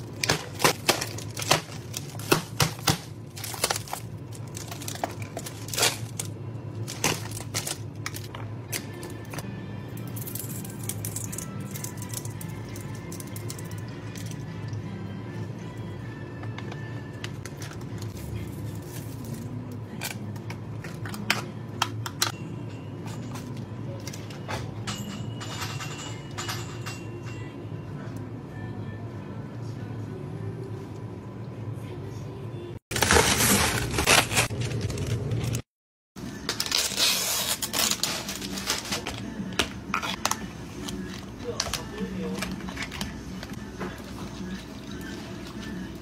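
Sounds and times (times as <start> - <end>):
plastic packaging crinkling: 0.0 - 8.3, 32.9 - 35.6.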